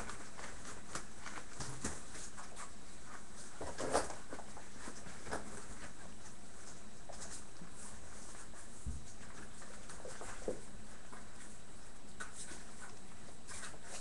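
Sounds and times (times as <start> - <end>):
puppy paws pattering on wooden floor: 0.0 - 14.0.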